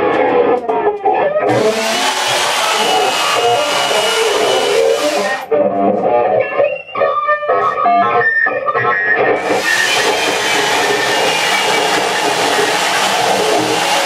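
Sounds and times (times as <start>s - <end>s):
chainsaw running: 1.5s - 5.4s, 9.4s - 14.0s.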